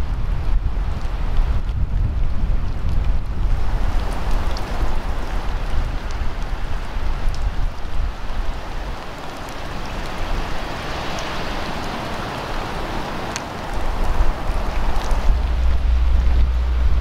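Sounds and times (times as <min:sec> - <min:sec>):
wind rumbling on microphone: 0:00.0 - 0:17.0
floodwater washing: 0:03.4 - 0:17.0.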